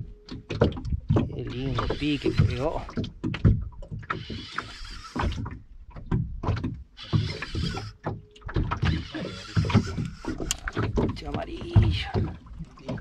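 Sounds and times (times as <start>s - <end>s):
water slapping boat hull: 0.0s - 13.0s
fishing reel cranking: 1.5s - 2.9s, 4.1s - 5.6s, 7.0s - 8.1s, 8.7s - 10.8s.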